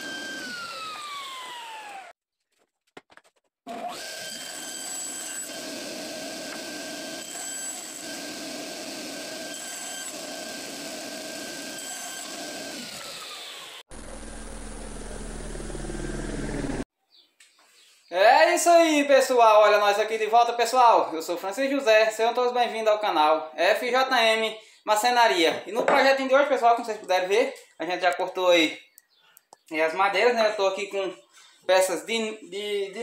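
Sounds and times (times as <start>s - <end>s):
table saw cutting wood: 0.0s - 2.2s, 3.7s - 16.9s.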